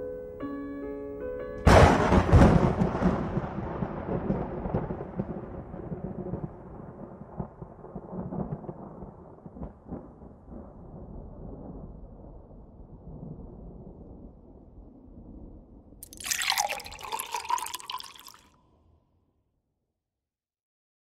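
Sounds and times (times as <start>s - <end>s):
thunder crack and rumble: 1.7s - 16.0s.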